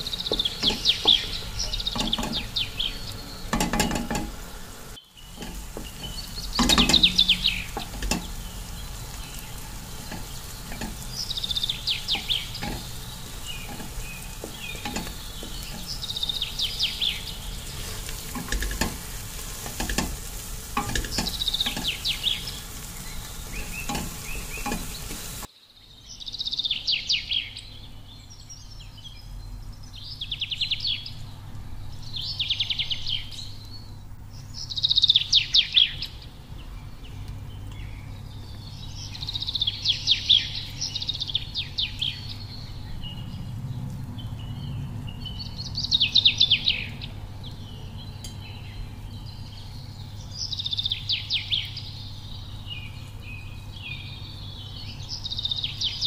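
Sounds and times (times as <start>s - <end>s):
spoon scraping metal pot: 0.0s - 4.5s, 5.3s - 8.9s, 9.5s - 11.2s, 12.0s - 25.5s
low steady hum: 0.0s - 25.5s
small bird chirping: 0.0s - 43.6s, 44.2s - 56.0s.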